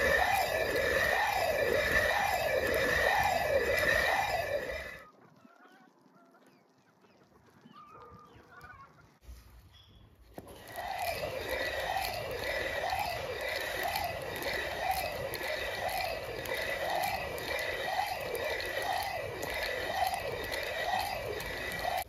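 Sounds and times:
millstones grinding grain: 0.0 - 5.0, 10.4 - 22.0.

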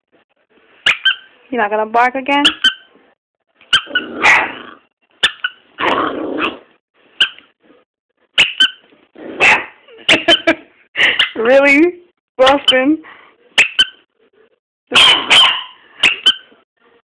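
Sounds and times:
puppy barking: 0.9 - 1.3, 2.4 - 2.9, 3.7 - 6.6, 9.4 - 10.5, 14.9 - 16.6.

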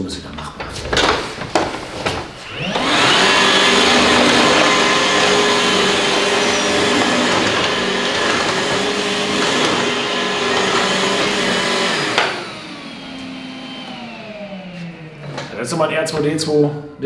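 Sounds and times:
vacuum cleaner running: 0.9 - 17.0
motor winding down whine: 2.4 - 15.6.

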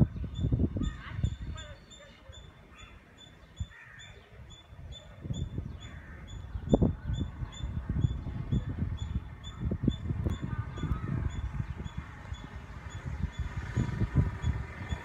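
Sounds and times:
wind buffeting microphone: 0.0 - 2.5, 3.4 - 15.0
crows cawing: 2.7 - 3.0, 3.7 - 4.2, 5.8 - 6.3.

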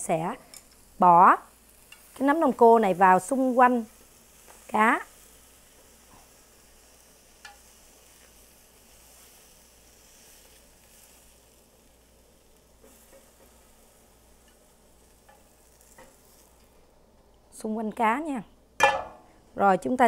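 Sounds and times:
faint sizzling hiss: 0.0 - 20.0
chopsticks scraping frying pan: 14.5 - 16.7.

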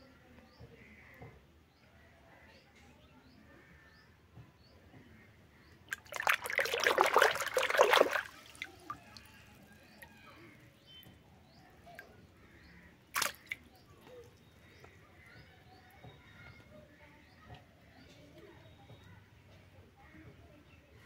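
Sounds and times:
water splashing and sloshing: 5.8 - 10.1, 13.1 - 14.5
sharp splash: 5.9 - 9.2, 13.1 - 13.8
water dripping: 5.9 - 10.1, 13.1 - 14.5.

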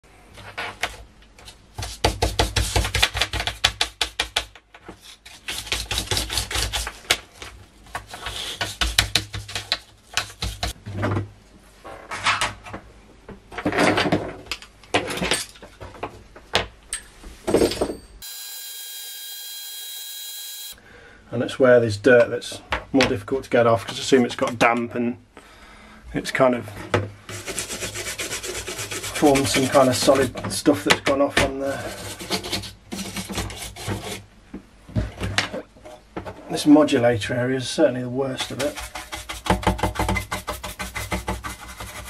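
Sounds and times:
brush scrubbing circuit board: 27.3 - 30.1, 38.4 - 42.0.

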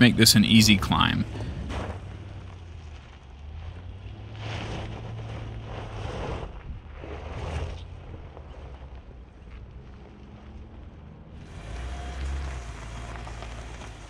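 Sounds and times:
car engine low hum: 0.0 - 14.0.

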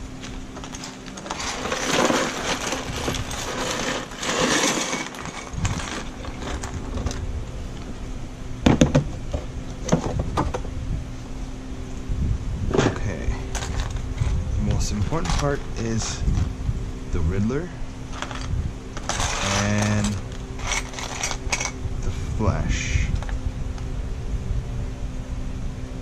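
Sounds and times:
low steady hum: 0.0 - 26.0
plastic bricks rustling in box: 0.2 - 7.2, 13.5 - 14.0, 15.0 - 15.6, 18.2 - 21.8
plastic bricks clattering together: 0.6 - 7.2, 18.2 - 21.8.

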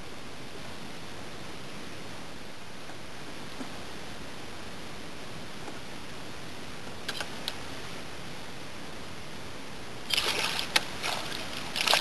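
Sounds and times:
steady background hiss: 0.0 - 12.0
sharp click: 7.1 - 7.6
fish splashing in water: 10.1 - 12.0.

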